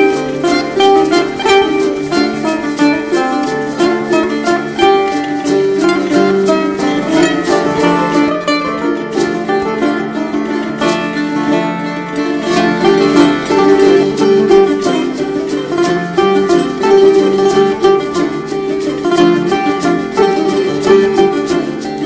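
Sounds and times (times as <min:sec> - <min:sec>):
plucked string dance music: 0:00.0 - 0:22.0.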